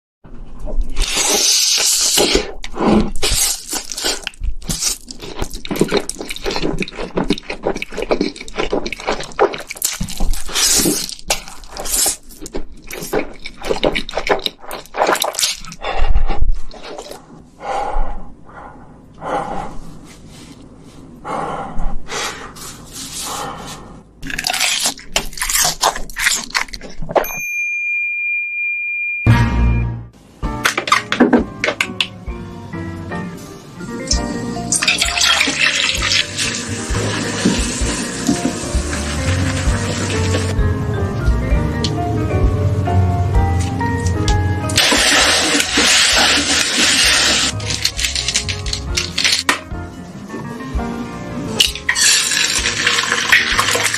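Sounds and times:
chewing: 0:00.8 - 0:17.2, 0:24.2 - 0:27.2
wet noodle slurping: 0:01.0 - 0:15.8, 0:44.7 - 0:49.3, 0:51.9 - 0:53.9.

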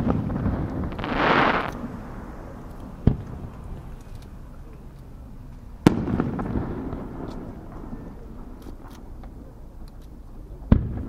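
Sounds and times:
faint firework pops: 0:00.0 - 0:11.0
firework shell bang: 0:05.8 - 0:08.9.

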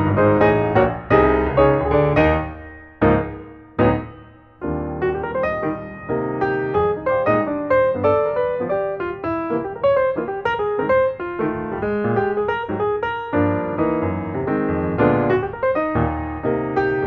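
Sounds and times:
held chords: 0:00.0 - 0:12.9.

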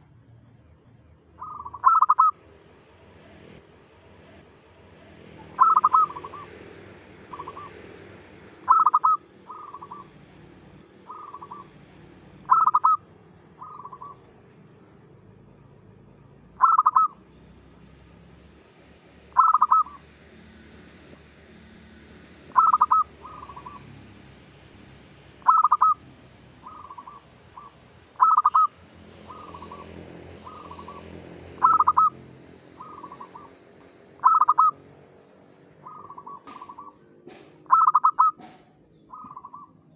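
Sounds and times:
dove cooing: 0:01.4 - 0:02.4, 0:05.4 - 0:06.6, 0:07.3 - 0:07.8, 0:08.6 - 0:10.2, 0:11.0 - 0:11.8, 0:12.4 - 0:13.0, 0:13.6 - 0:14.3, 0:16.6 - 0:17.2, 0:19.3 - 0:20.0, 0:22.5 - 0:23.9, 0:25.4 - 0:26.0, 0:26.6 - 0:33.6, 0:34.2 - 0:34.8, 0:35.8 - 0:39.7.

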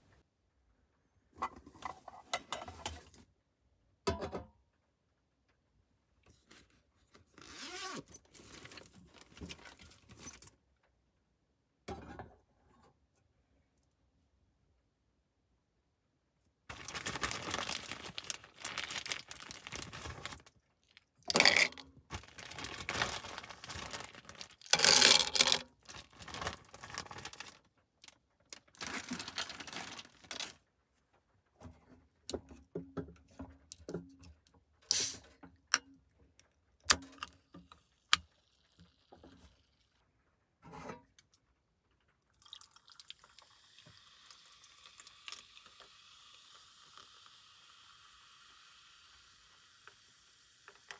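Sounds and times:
liquid pouring: 0:16.7 - 0:20.5, 0:21.3 - 0:27.5, 0:42.3 - 0:49.4
rustling: 0:16.7 - 0:20.6, 0:21.4 - 0:30.7.

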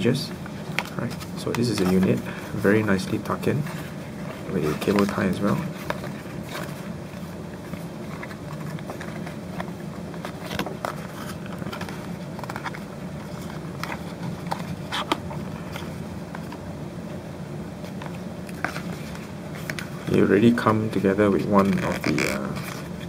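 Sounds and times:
steady low hum: 0:00.0 - 0:23.0
card and cable rustling clicks: 0:04.5 - 0:16.6.

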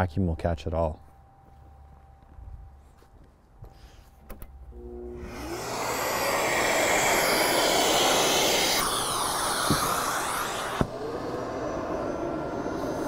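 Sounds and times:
dust extractor air hiss: 0:05.2 - 0:13.0.

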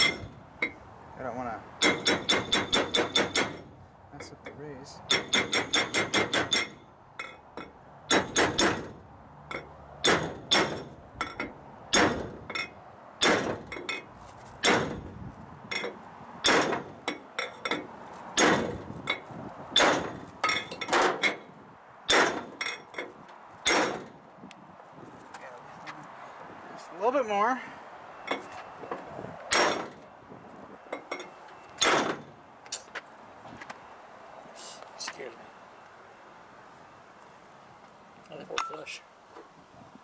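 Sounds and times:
hammer striking metal with clang: 0:01.8 - 0:03.6.

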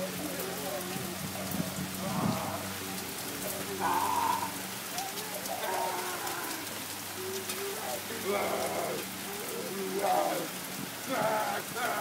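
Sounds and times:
rain on pavement and grass: 0:00.0 - 0:12.0.

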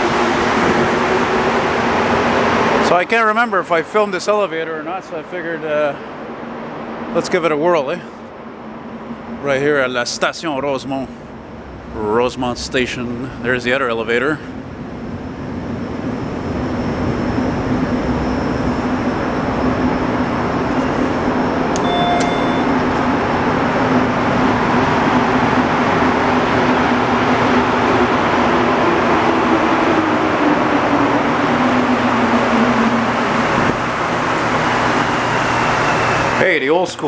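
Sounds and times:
metro train rumble: 0:00.0 - 0:37.0
train motor hum: 0:03.8 - 0:37.0
short beep: 0:21.8 - 0:22.8.

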